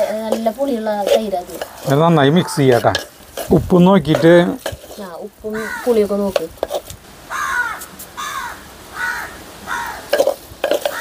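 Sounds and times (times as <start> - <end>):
crow cawing: 5.5 - 6.1, 7.3 - 10.2.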